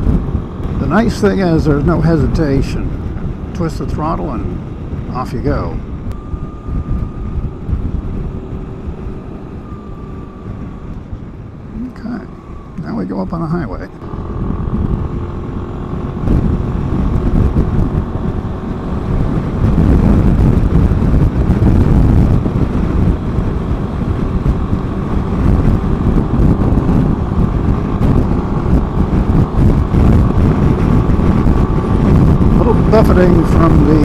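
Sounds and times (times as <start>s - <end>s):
wind rushing over microphone: 0.0s - 34.0s
scooter engine accelerating: 13.8s - 34.0s.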